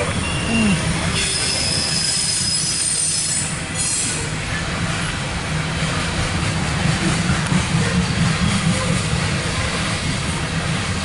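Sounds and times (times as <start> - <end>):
train cars rumbling past: 0.0 - 11.0
steel wheel squeal: 0.2 - 4.3.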